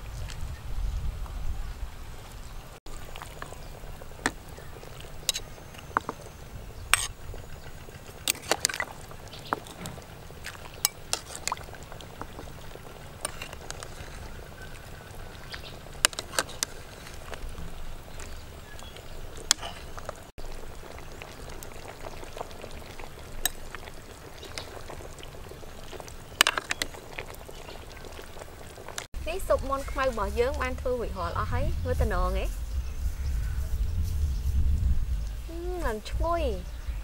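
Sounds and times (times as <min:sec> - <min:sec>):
soup simmering in a metal pot: 0:02.8 - 0:31.3
sharp clicks and pops: 0:15.4 - 0:20.4, 0:21.6 - 0:29.1.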